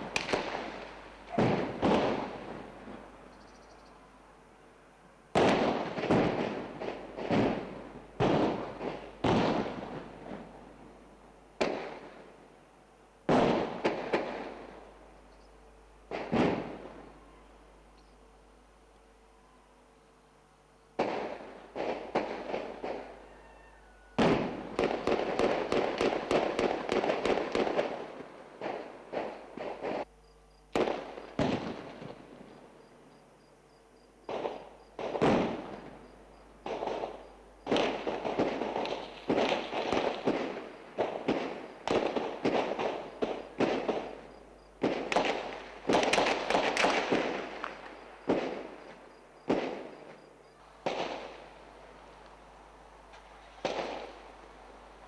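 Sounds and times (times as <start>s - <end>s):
single gunshots: 0.0s - 2.6s, 5.4s - 10.1s, 16.1s - 17.0s, 21.0s - 23.1s, 30.7s - 32.2s, 34.3s - 35.9s, 36.7s - 44.2s, 49.4s - 50.2s, 50.8s - 51.4s
gunfire bursts with echo: 0.0s - 3.0s, 5.3s - 10.4s, 21.0s - 23.2s, 24.2s - 30.1s, 30.7s - 32.2s, 34.3s - 35.9s, 36.6s - 51.4s.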